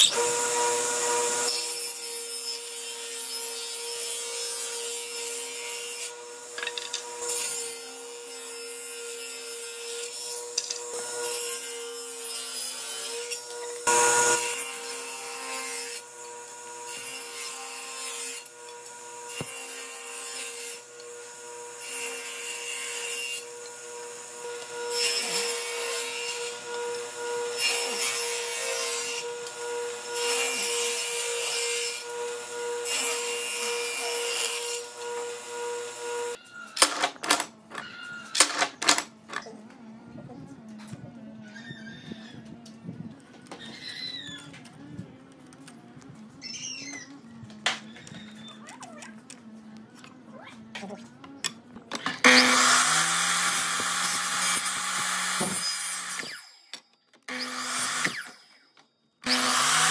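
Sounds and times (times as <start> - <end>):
table saw running: 0.0 - 8.5, 13.0 - 36.4, 52.2 - 56.4, 57.3 - 58.4, 59.2 - 59.9.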